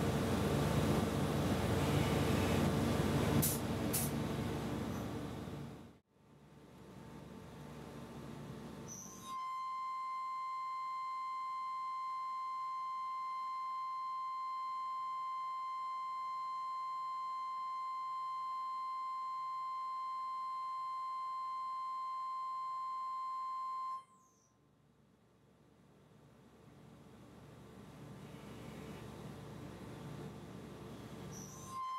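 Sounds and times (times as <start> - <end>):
end mill high-pitched squeal: 31.3 - 31.9.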